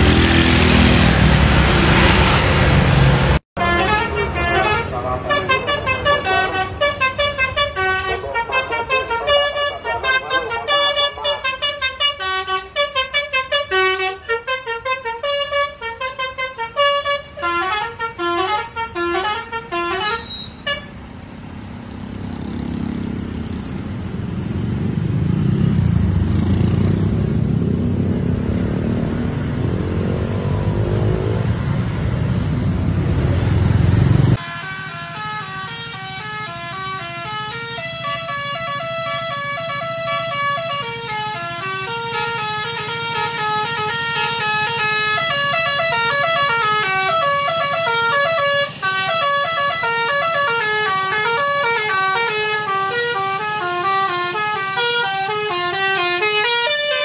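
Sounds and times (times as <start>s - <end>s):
bus horn melody: 0.0s - 21.1s, 34.4s - 57.0s
bus engine passing: 0.0s - 57.0s.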